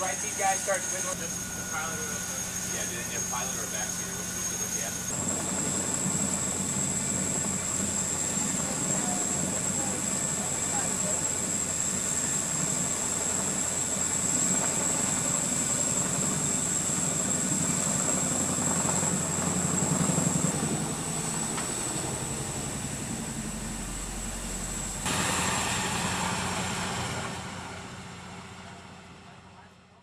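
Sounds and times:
helicopter rotor beat: 0.0s - 29.8s
turbine engine whine: 0.0s - 30.0s.

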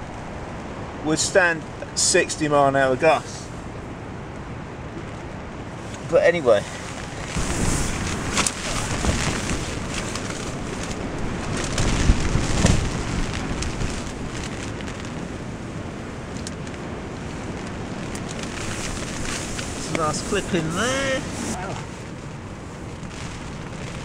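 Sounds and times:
storm wind buffeting tent: 0.0s - 24.0s
nylon tent fabric rustling: 5.8s - 15.7s, 16.4s - 24.0s.

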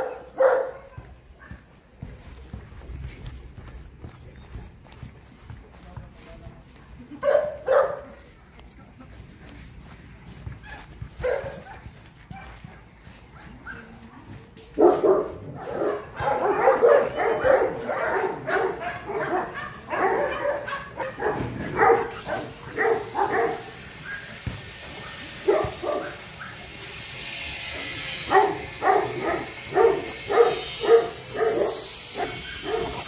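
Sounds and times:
large dogs barking: 0.0s - 1.6s, 7.2s - 8.2s, 10.6s - 12.5s, 14.7s - 27.0s, 27.6s - 33.0s.

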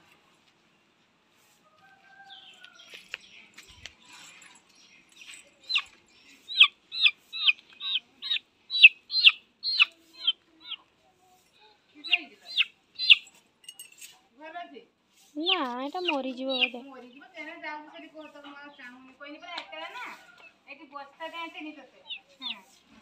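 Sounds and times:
click on dirt: 2.6s - 4.0s.

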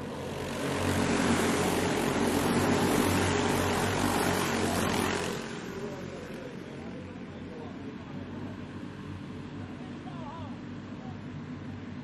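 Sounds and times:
racing karts passing: 0.0s - 7.6s.

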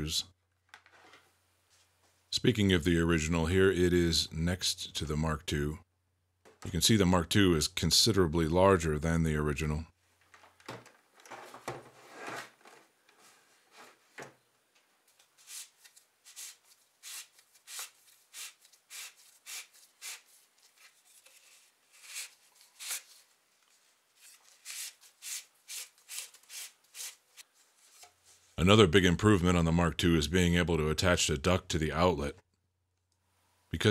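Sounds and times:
duct hose rustling scrapes: 11.2s - 14.2s.

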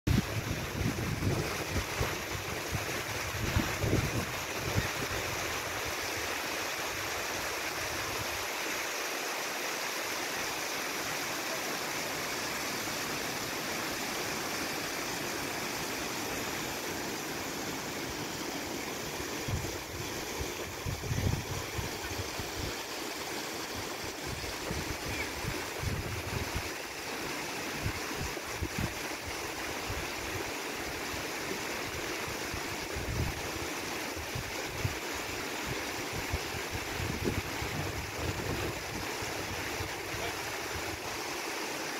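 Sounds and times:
river water rushing: 0.1s - 41.9s
wind buffeting microphone: 19.5s - 22.6s.

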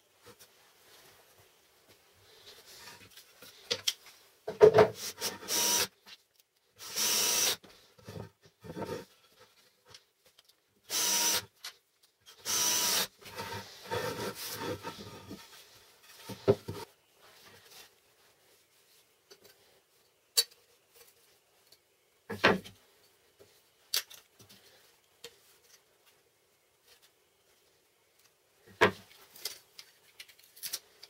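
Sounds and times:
cordless drill driving screws: 5.3s - 5.9s, 6.8s - 7.6s, 10.9s - 11.4s, 12.4s - 13.1s.

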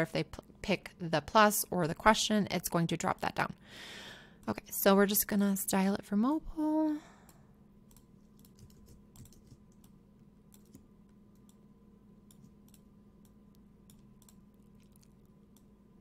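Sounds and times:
low steady hum: 0.0s - 16.0s
mouse and keyboard clicks: 7.9s - 10.8s.

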